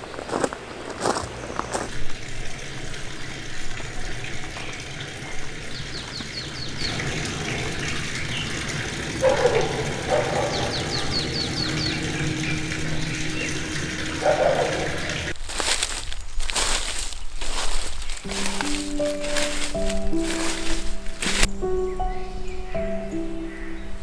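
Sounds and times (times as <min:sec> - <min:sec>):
steady background rush: 0:05.3 - 0:15.4
bird singing high notes: 0:09.2 - 0:15.3, 0:18.3 - 0:24.0.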